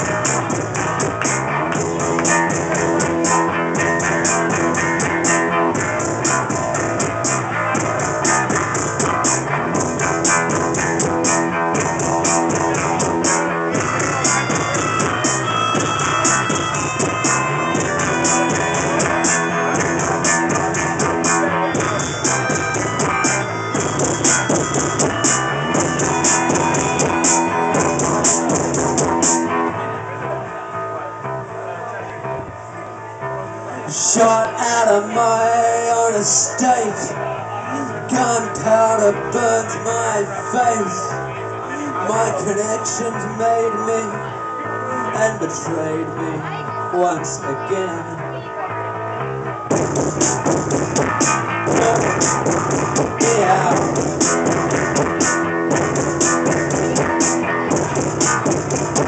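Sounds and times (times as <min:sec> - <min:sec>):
steady drum beat: 0:00.0 - 0:29.5, 0:49.7 - 0:59.0
bass guitar: 0:00.0 - 0:59.0.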